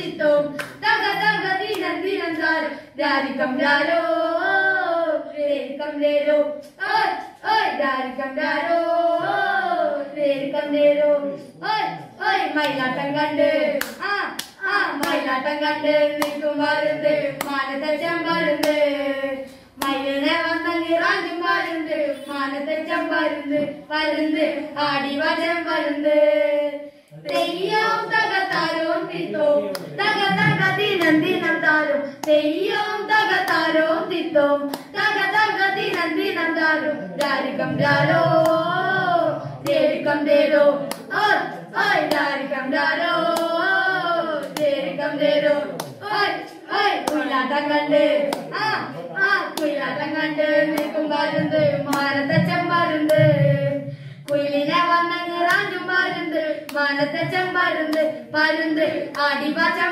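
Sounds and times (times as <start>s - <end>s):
boys singing slow melody: 0.0s - 59.9s
hand clap: 0.5s - 0.9s, 1.6s - 2.5s, 12.6s - 12.9s, 13.7s - 15.4s, 16.0s - 16.6s, 17.4s - 17.7s, 18.3s - 18.9s, 19.8s - 20.1s, 28.5s - 28.8s, 29.7s - 32.4s, 33.4s - 33.9s, 34.6s - 35.2s, 35.8s - 36.2s, 38.4s - 39.0s, 40.9s - 42.4s, 43.2s - 43.6s, 44.4s - 44.8s, 45.7s - 46.0s, 47.0s - 47.3s, 48.2s - 48.7s, 49.5s - 49.8s, 50.6s - 53.5s, 54.3s - 59.8s.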